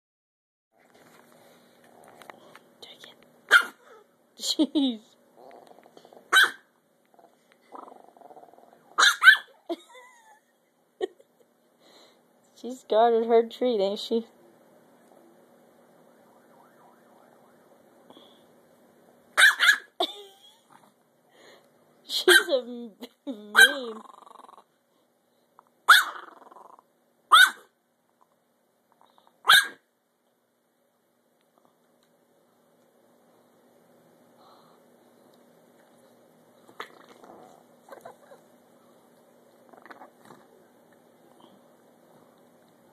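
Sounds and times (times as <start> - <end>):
puppy growling low: 1.8 - 2.4, 5.3 - 6.3, 7.1 - 9.0, 23.8 - 24.7, 26.1 - 26.9, 36.7 - 40.7
puppy barking sharply: 3.5 - 3.8, 6.3 - 6.7, 9.0 - 9.6, 19.4 - 20.0, 22.3 - 22.5, 25.9 - 26.2, 27.3 - 27.7, 29.4 - 29.8.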